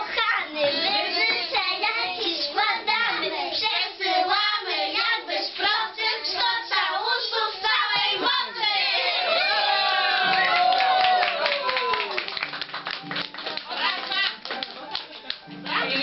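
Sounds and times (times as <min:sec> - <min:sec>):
children singing: 0:00.0 - 0:09.4.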